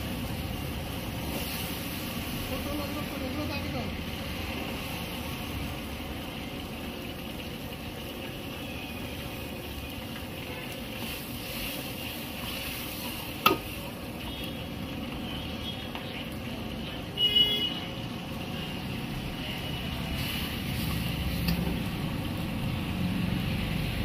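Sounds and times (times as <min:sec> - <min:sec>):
soup bubbling in a wok: 0:00.0 - 0:24.0
ladle stirring in a wok: 0:06.8 - 0:16.2, 0:19.9 - 0:22.5
ladle knocking against wok: 0:13.4 - 0:13.7.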